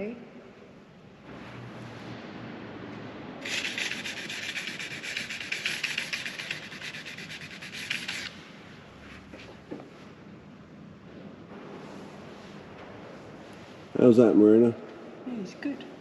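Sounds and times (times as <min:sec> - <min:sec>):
hand sanding: 0:03.4 - 0:08.4.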